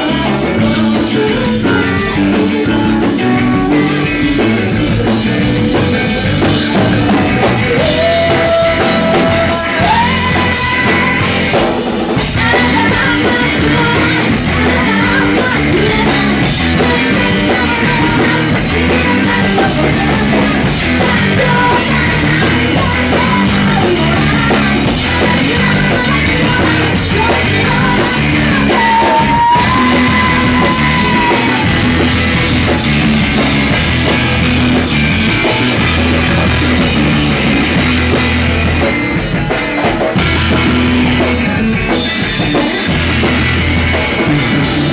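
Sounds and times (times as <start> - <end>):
woman singing: 0.0 - 32.1
drum kit: 0.0 - 44.9
electric bass: 0.0 - 44.9
electric guitars: 0.0 - 44.9.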